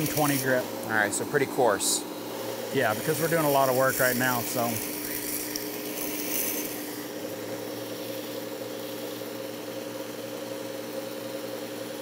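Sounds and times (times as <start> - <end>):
sharpener motor hum: 0.0 - 1.4, 2.0 - 12.0
belt grinding knife steel: 2.9 - 7.1.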